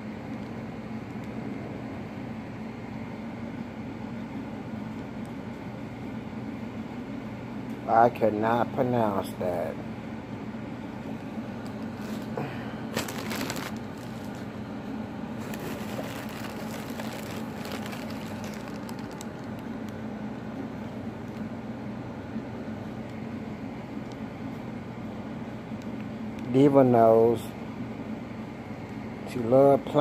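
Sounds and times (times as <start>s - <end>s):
steady low hum: 0.0s - 30.0s
plastic packaging crinkling: 12.0s - 14.6s, 15.4s - 19.9s.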